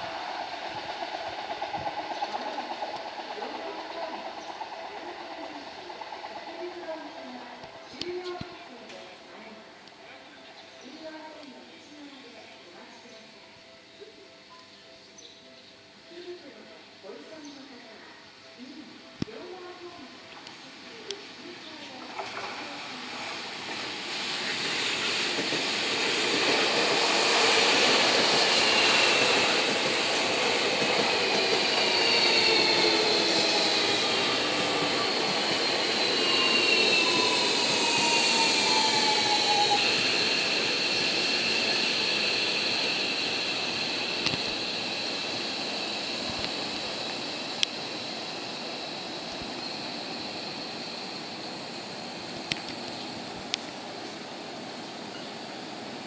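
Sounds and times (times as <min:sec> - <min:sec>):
train wheel and running noise: 0:00.0 - 0:13.3, 0:16.1 - 0:56.0
traction motor whine: 0:25.2 - 0:53.8.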